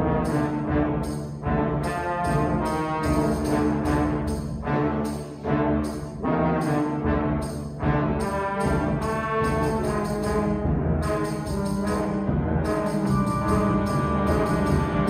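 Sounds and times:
brass sustained chords: 0:00.0 - 0:15.0
concert band playing: 0:08.3 - 0:15.0.

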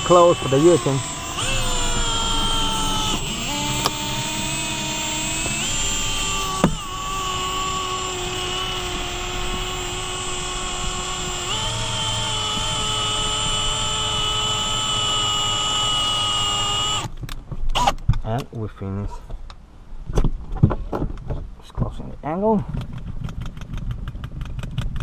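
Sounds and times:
cordless drill whining: 0:00.0 - 0:17.1, 0:17.7 - 0:18.0
sharp clicks: 0:00.1 - 0:08.9.

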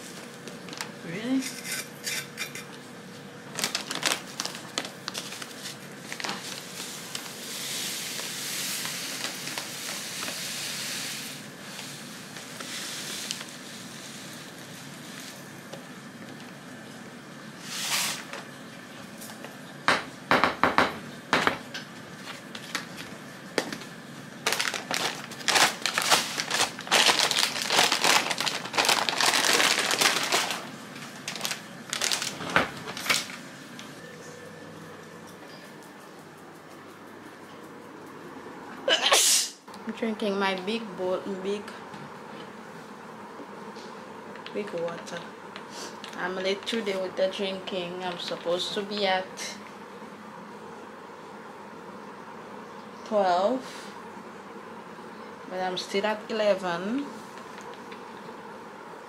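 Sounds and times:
crinkling and rustling: 0:00.0 - 0:01.0, 0:03.5 - 0:07.5, 0:08.1 - 0:10.7, 0:11.7 - 0:16.6, 0:22.2 - 0:34.0.

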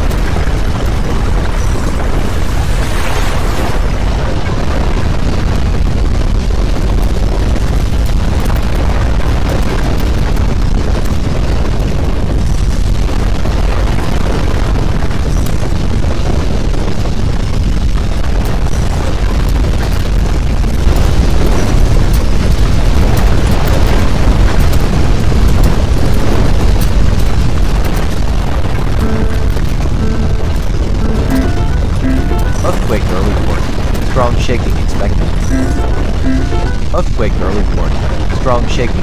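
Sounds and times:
deep earthquake rumble: 0:00.0 - 0:31.2.

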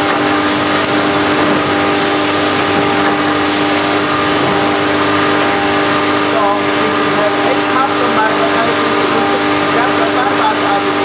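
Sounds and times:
packing machine drone: 0:00.0 - 0:11.0.

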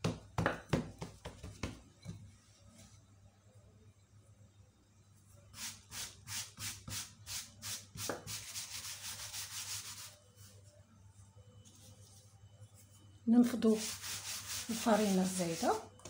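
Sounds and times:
hand brushing floured dough: 0:05.6 - 0:16.0.

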